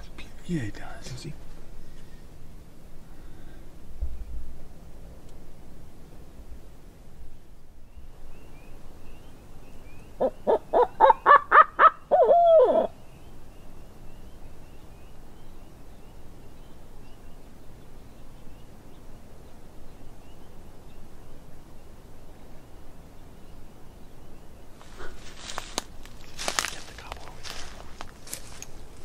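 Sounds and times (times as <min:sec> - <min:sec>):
owl hooting: 0:09.9 - 0:13.0.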